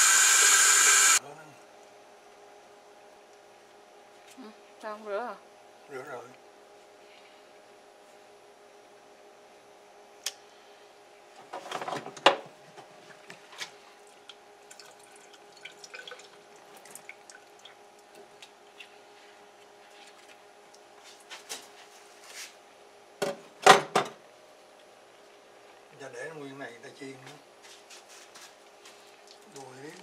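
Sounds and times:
faint steady hum: 0:00.0 - 0:30.0
dripping: 0:14.6 - 0:18.8.

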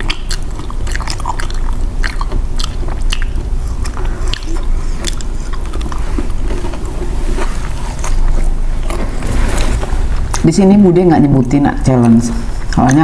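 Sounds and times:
mouth clicks: 0:00.0 - 0:06.0
close chewing and biting: 0:00.0 - 0:09.2.

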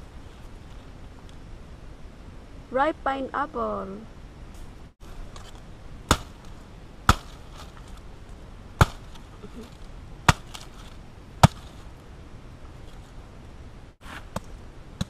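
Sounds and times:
machete chopping pineapple: 0:06.1 - 0:06.5, 0:07.1 - 0:07.8, 0:08.8 - 0:11.8.

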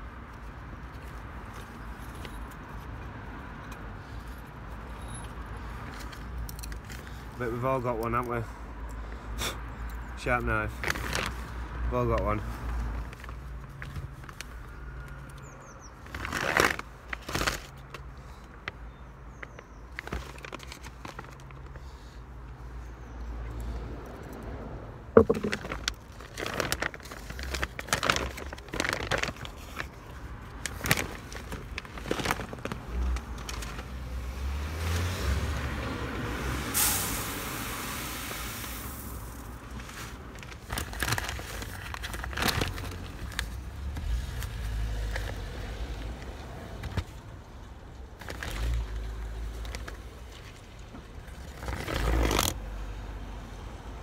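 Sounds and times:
plastic and paper bags rustling: 0:10.2 - 0:11.6, 0:16.0 - 0:18.5, 0:19.5 - 0:21.8, 0:25.2 - 0:34.1, 0:38.2 - 0:45.5, 0:48.2 - 0:52.6.

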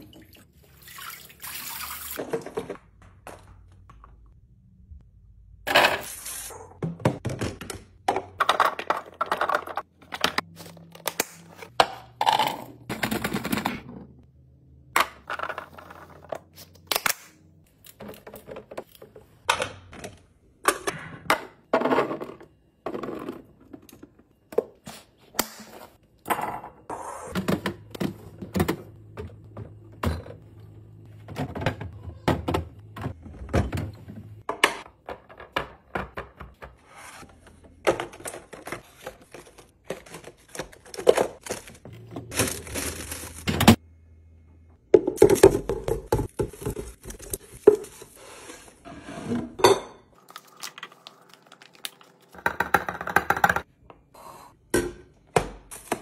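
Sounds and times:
plastic bag rustling: 0:41.4 - 0:43.5.

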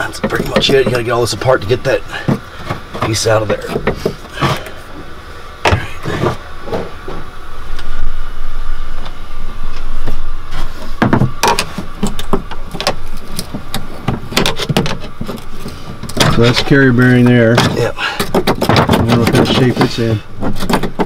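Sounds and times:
clanking tools and metal parts: 0:00.0 - 0:04.8.

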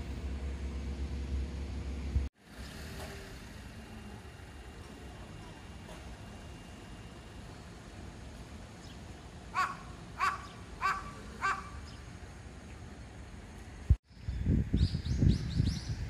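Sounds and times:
crow cawing: 0:09.5 - 0:11.8.

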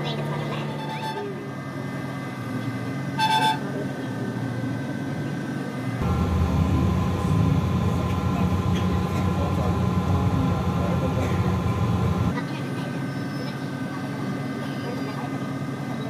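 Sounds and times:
bus engine rumble: 0:00.0 - 0:12.9
vehicle horn toot: 0:03.2 - 0:03.7.

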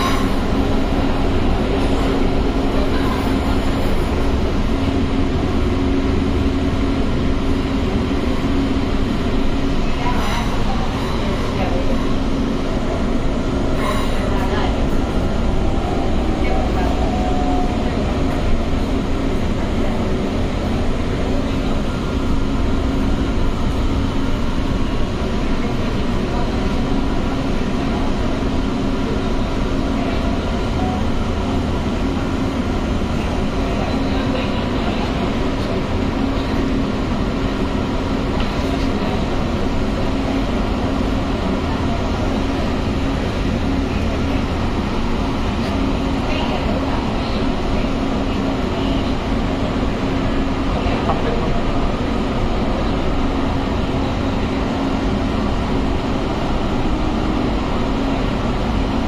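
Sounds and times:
train wheels rumbling on rail: 0:00.0 - 0:59.0.

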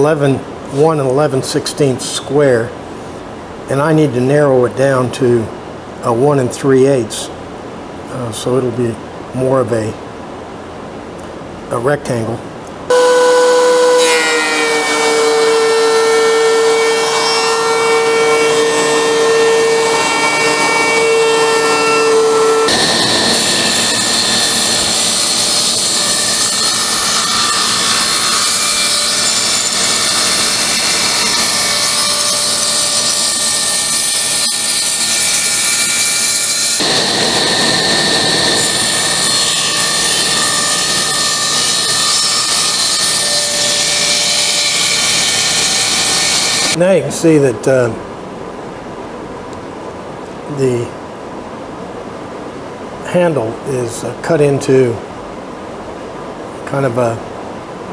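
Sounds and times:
thickness planer motor running: 0:12.9 - 0:35.0, 0:36.8 - 0:46.8
table saw cutting wood: 0:12.9 - 0:46.8.

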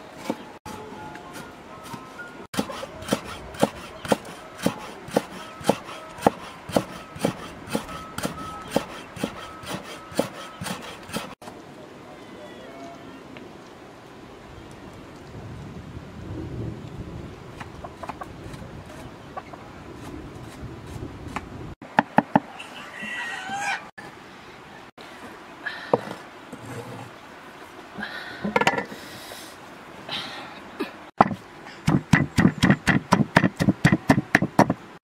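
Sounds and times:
cleaver chopping on wooden block: 0:02.6 - 0:11.4, 0:31.2 - 0:34.8.

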